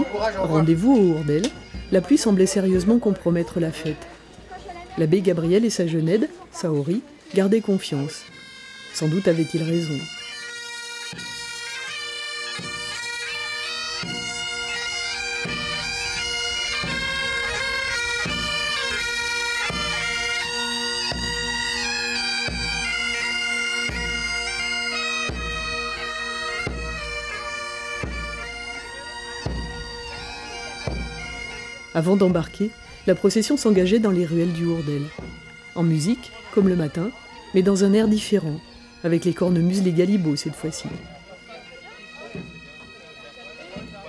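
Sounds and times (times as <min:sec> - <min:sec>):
bagpipes playing a march: 0:00.0 - 0:44.0
regular low drum beat: 0:00.5 - 0:03.8.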